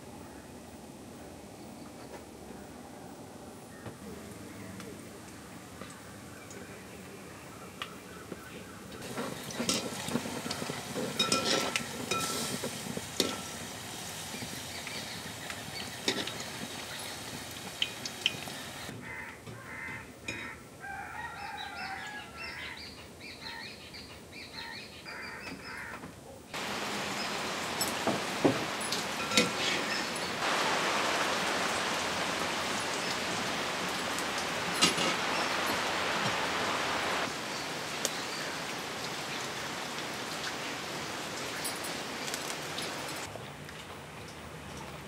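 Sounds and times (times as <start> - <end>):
rain pattering: 3.9 - 18.9, 26.6 - 45.0
hot oil sizzling and crackling: 8.9 - 18.9, 26.6 - 43.3
birds calling: 21.6 - 26.0, 26.6 - 39.5.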